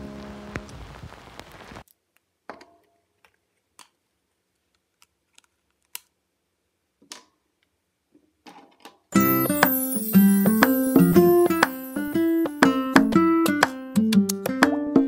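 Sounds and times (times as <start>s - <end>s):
background music: 9.2s - 15.0s.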